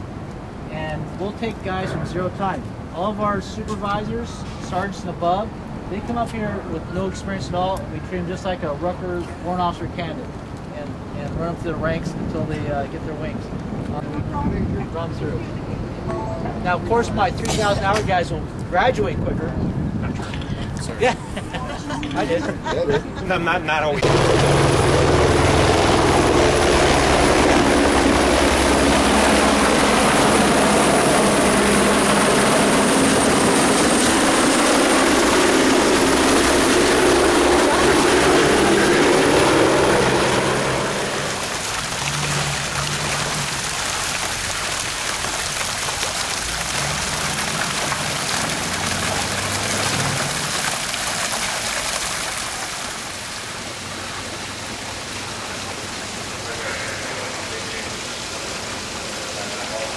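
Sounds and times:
helicopter rotors and engines: 0:00.0 - 0:20.0, 0:23.8 - 0:43.6.

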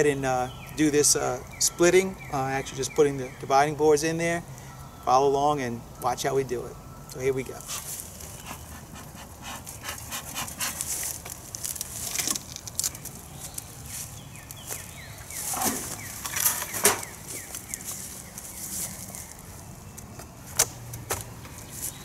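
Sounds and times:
rustling: 0:07.5 - 0:19.7.

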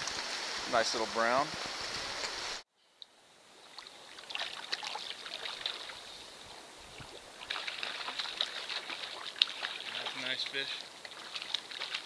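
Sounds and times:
stream water trickling: 0:00.0 - 0:12.0.

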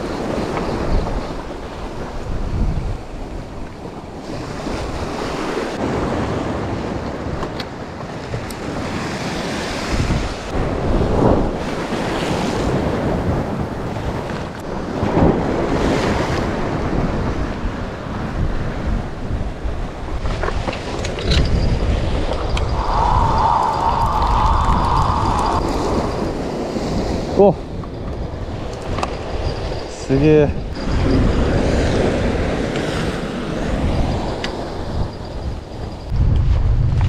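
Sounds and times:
wind buffeting microphone: 0:00.0 - 0:37.0
surf washing against rocks: 0:08.4 - 0:27.8.

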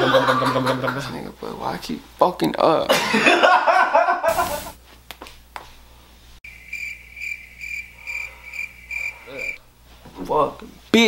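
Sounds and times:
static hiss: 0:04.2 - 0:04.8
high pulsing chirp: 0:06.4 - 0:09.6.

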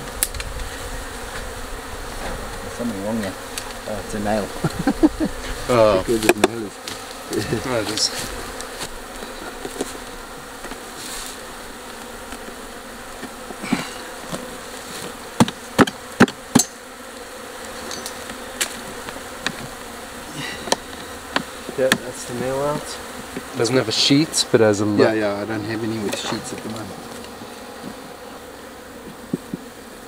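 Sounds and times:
honeybees buzzing: 0:00.0 - 0:30.0
sharp knocks on wood: 0:15.4 - 0:16.7, 0:20.7 - 0:22.1.

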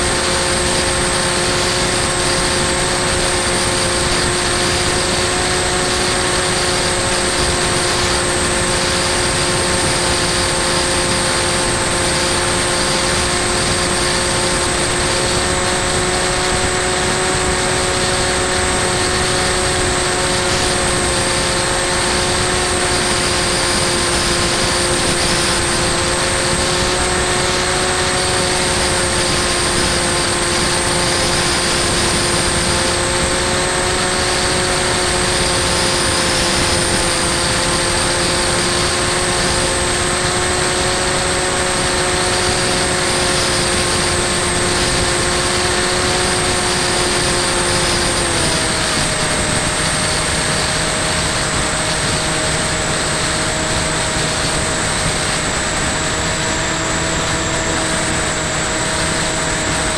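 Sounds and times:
electric propeller motor whining: 0:00.0 - 0:59.9.

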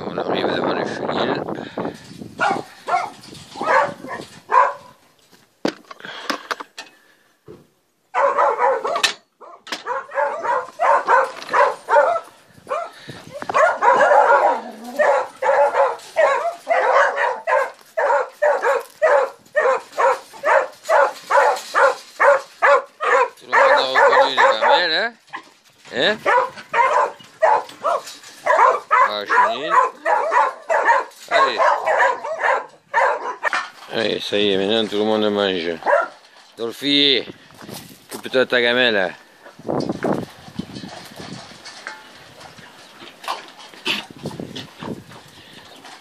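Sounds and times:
hounds barking: 0:02.4 - 0:05.0, 0:08.1 - 0:25.6, 0:26.2 - 0:33.7, 0:35.8 - 0:36.2.

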